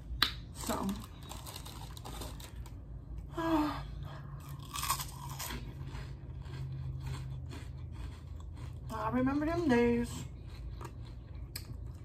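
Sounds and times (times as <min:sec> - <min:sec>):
chewing crunchy chips: 0:00.5 - 0:02.9, 0:04.3 - 0:12.0.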